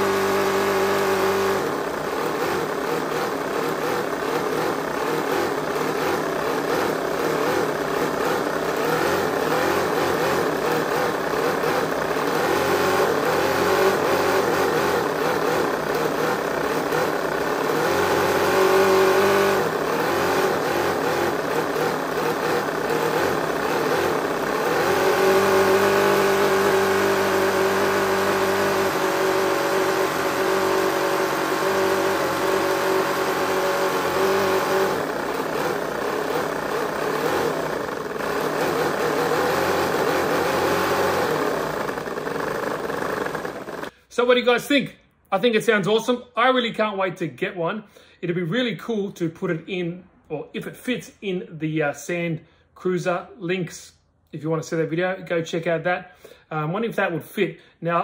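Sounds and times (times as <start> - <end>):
model engine revving: 0.0 - 44.0.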